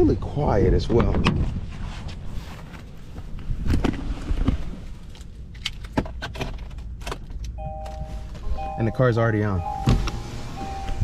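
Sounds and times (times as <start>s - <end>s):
low steady rumble: 6.7s - 11.0s.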